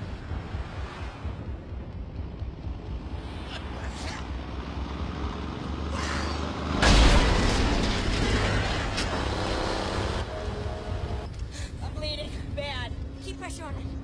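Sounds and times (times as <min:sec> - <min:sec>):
loud crash: 0:06.8 - 0:09.4.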